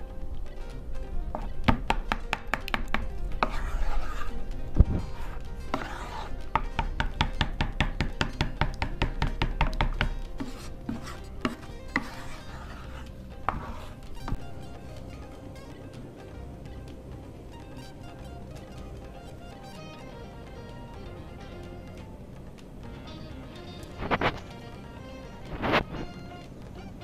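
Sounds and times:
wooden spatula scraping pot: 1.3s - 15.3s.

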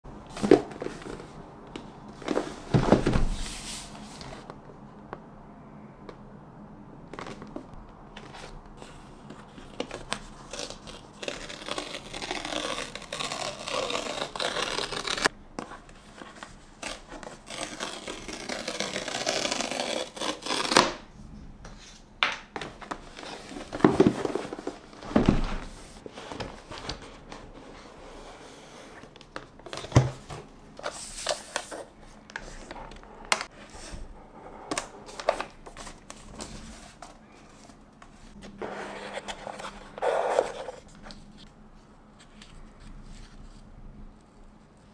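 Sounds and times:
paper strips tearing: 10.5s - 15.3s, 17.4s - 20.9s.

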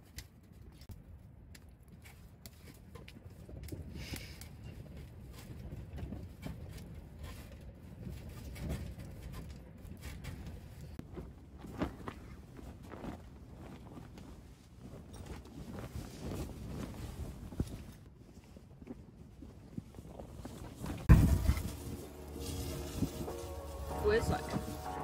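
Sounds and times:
strong wind against a tent: 0.4s - 25.0s
fire popping: 19.6s - 25.0s
wood fire crackling: 20.1s - 25.0s.

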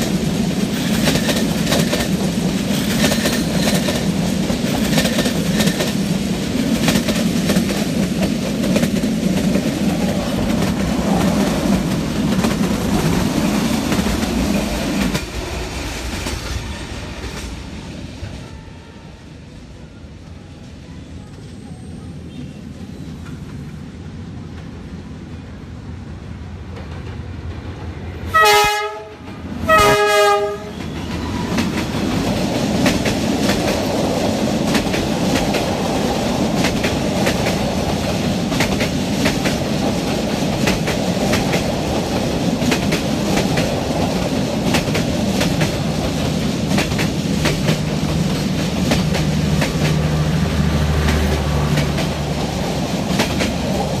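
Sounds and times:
wheels clacking over rail joints: 0.0s - 17.6s, 30.7s - 54.0s
train rumble: 0.0s - 54.0s
train horn blasts: 18.3s - 19.3s, 28.3s - 31.5s.

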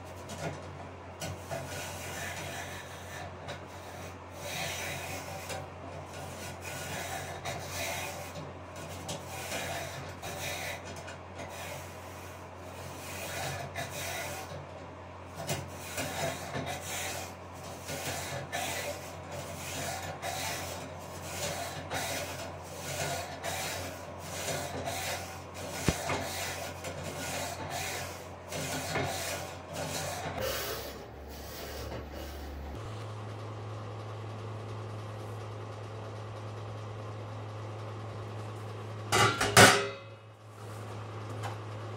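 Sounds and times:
steady low hum: 0.0s - 41.9s.

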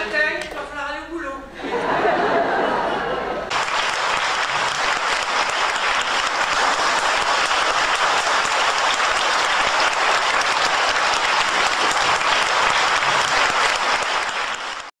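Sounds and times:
audience applauding: 3.0s - 14.9s.

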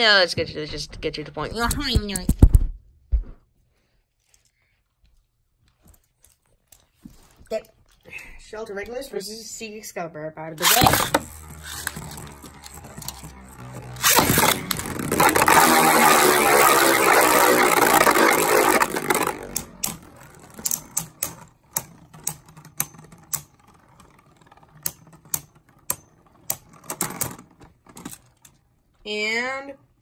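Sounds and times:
spinning top launch: 10.6s - 27.5s
spinning tops clacking together: 10.6s - 28.6s
spinning tops whirring and grinding: 10.6s - 28.8s.

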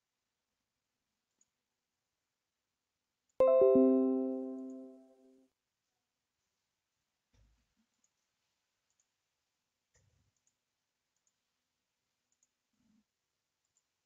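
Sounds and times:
faint computer mouse clicks: 12.3s - 12.6s.

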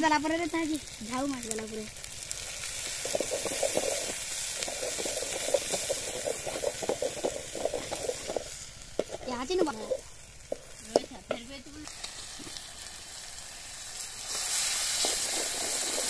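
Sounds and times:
food sizzling in a pan: 0.0s - 16.0s
ladle scraping a pan: 2.8s - 10.8s.

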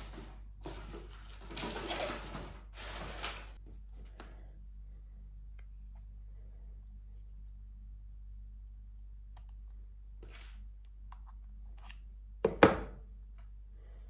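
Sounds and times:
steady low hum: 3.6s - 12.4s, 13.0s - 14.0s.

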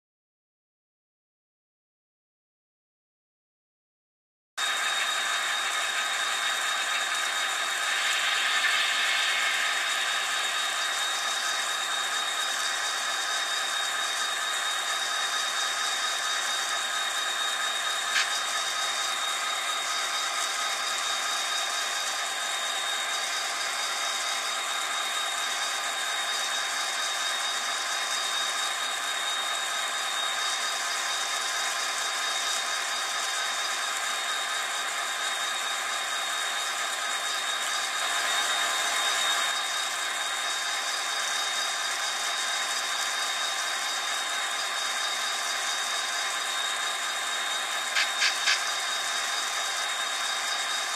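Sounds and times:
high thin whine: 4.6s - 28.5s, 42.8s - 49.7s
model train running: 4.6s - 50.9s
sharp click: 48.0s - 48.7s.

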